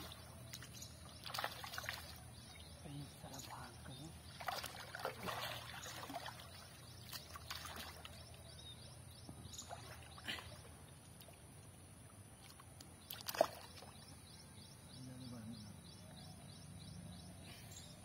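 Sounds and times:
water splashing: 0.0s - 8.4s, 9.4s - 11.5s, 12.4s - 14.1s.

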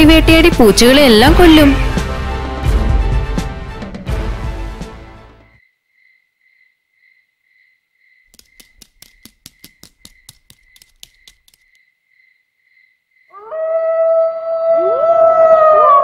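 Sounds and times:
faint regular chirping: 6.0s - 13.3s
fox howling: 13.3s - 16.0s.

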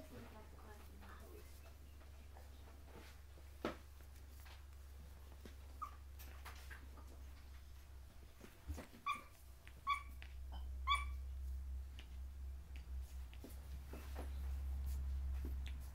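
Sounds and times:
low steady hum: 0.0s - 15.9s
soft scuffling clicks: 0.3s - 10.5s, 11.4s - 15.9s
puppies yipping: 5.7s - 6.3s, 8.9s - 11.3s.

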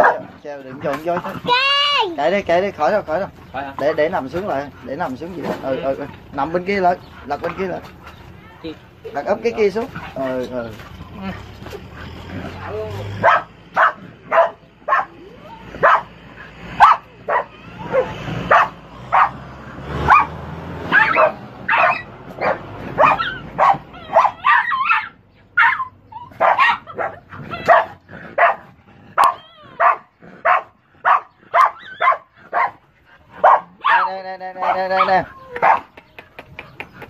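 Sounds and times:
dog yipping and barking: 0.0s - 0.3s, 12.5s - 16.1s, 16.8s - 19.4s, 20.0s - 36.0s.

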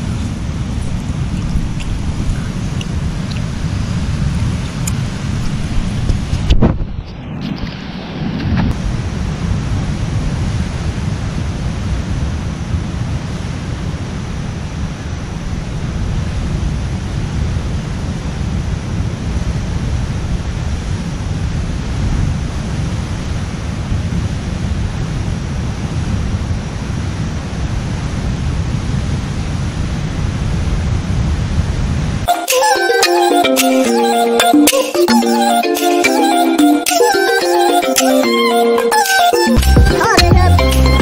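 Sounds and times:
wind buffeting microphone: 0.0s - 32.3s.

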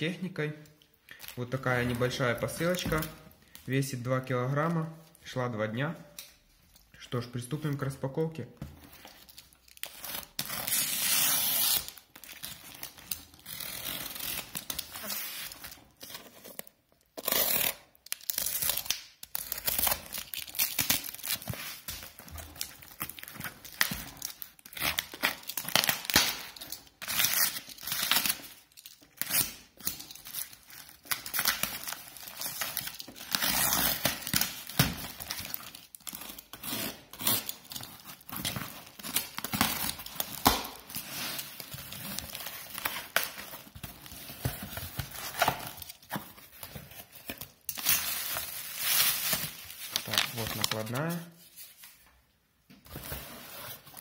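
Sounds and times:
plastic film crinkling and ripping: 9.0s - 52.0s.

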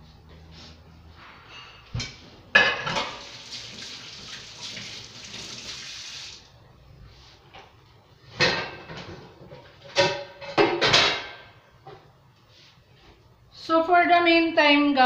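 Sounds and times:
dish clattering in sink: 1.9s - 3.9s, 8.4s - 11.5s
tap water running: 2.9s - 6.5s.

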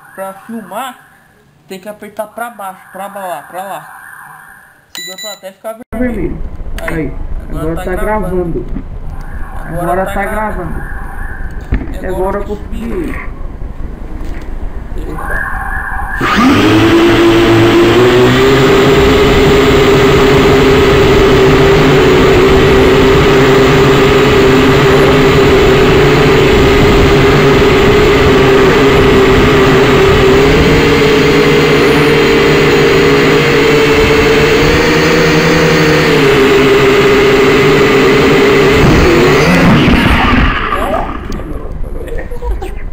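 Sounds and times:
toy drone high-pitched buzz: 15.2s - 40.8s.

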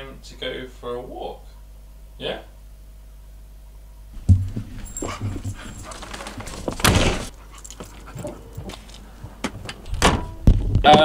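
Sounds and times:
thump: 4.2s - 5.4s, 6.8s - 7.3s
dog scuffling: 4.2s - 9.9s.

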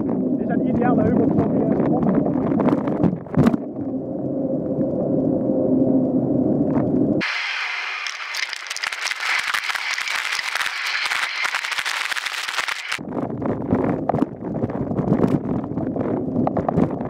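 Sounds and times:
wind rumble on microphone: 0.0s - 7.4s, 9.2s - 17.0s
bike crackling over rough ground: 7.2s - 13.0s.

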